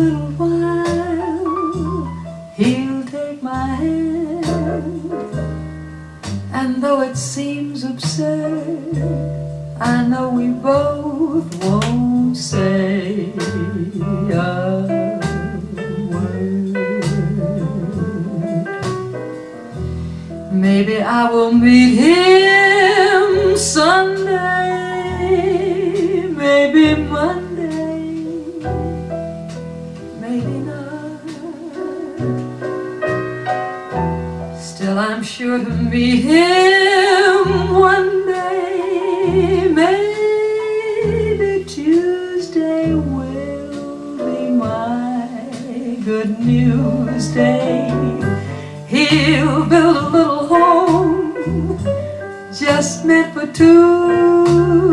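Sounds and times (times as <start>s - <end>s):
stepping bass line: 8.1s - 20.6s, 46.4s - 54.9s
woman singing with vibrato: 9.8s - 18.6s, 20.5s - 28.8s, 30.2s - 32.2s, 34.6s - 51.8s, 52.5s - 54.9s.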